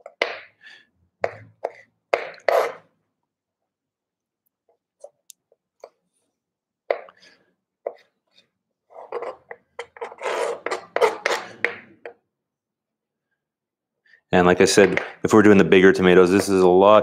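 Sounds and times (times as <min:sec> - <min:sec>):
knife chopping on plastic board: 0:01.2 - 0:02.6.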